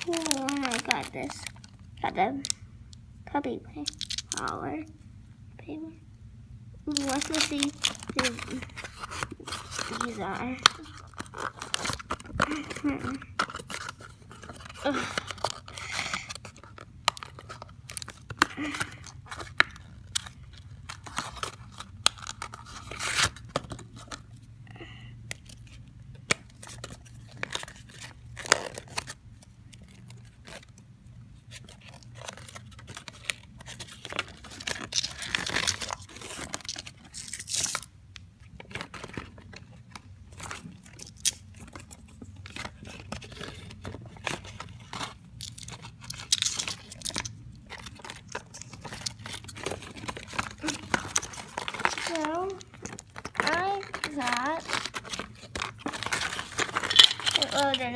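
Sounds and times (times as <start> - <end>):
plastic wrappers crinkling and tearing: 0.0 - 2.7, 3.8 - 4.8, 6.8 - 57.9
cardboard box opened: 38.7 - 57.9.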